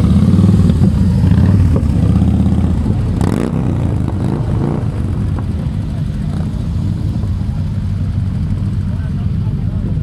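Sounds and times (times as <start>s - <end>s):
motorcycles riding past: 0.0s - 10.0s.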